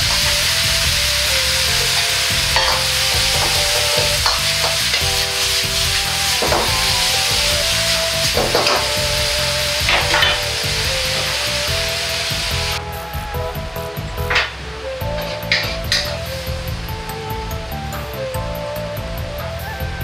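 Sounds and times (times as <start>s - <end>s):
food sizzling in a wok: 0.0s - 12.9s
metal ladle scraping a wok: 0.1s - 12.8s, 15.2s - 16.2s.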